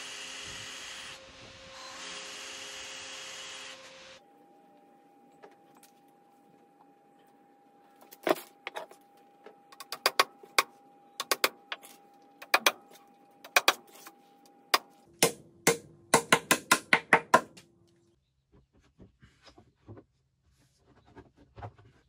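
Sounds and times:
wooden mallet knocking dowels: 0:14.8 - 0:17.6.

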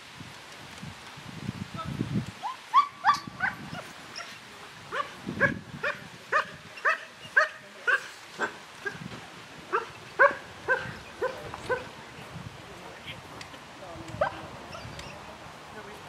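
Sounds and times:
dog yelping barks: 0:02.4 - 0:04.3, 0:09.7 - 0:11.9.

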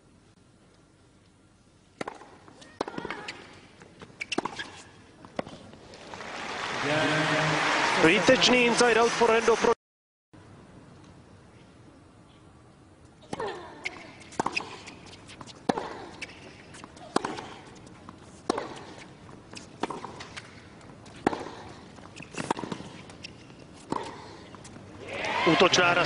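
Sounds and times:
racquet striking tennis ball: 0:02.0 - 0:03.5, 0:13.3 - 0:24.7
shoe squeaks: 0:02.6 - 0:05.0, 0:13.4 - 0:24.8
ball bouncing: 0:13.3 - 0:24.7.

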